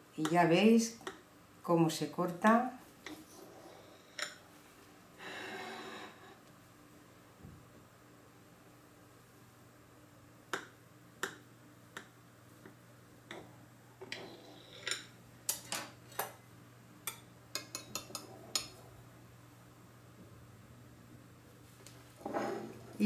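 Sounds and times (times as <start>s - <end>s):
cutlery clicking on ceramic plate: 17.1s - 18.8s.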